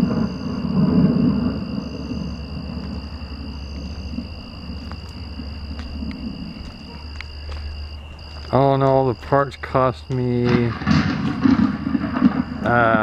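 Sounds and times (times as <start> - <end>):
crickets trilling: 0.0 - 13.0
thunder rumbling: 0.0 - 13.0.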